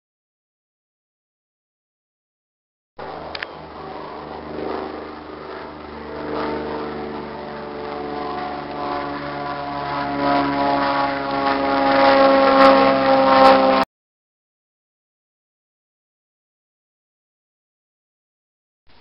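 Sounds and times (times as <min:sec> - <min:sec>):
engine droning: 0:03.0 - 0:13.9.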